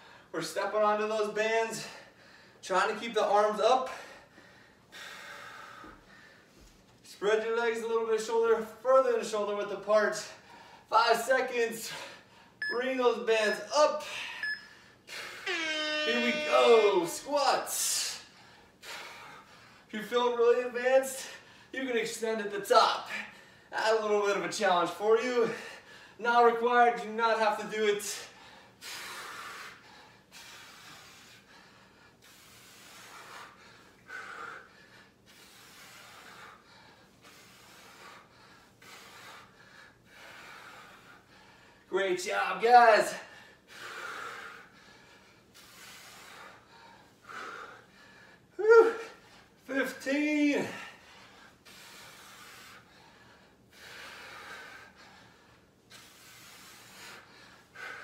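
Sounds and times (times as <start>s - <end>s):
man breathing hard: 1.8s - 2.6s, 3.9s - 6.7s, 10.3s - 10.9s, 18.1s - 19.9s, 25.5s - 26.2s, 28.2s - 41.9s, 43.2s - 49.6s, 50.6s - 58.0s.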